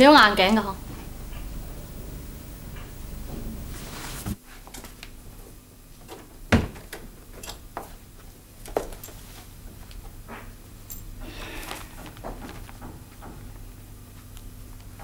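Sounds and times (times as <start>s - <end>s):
door shutting: 0.5s - 4.4s.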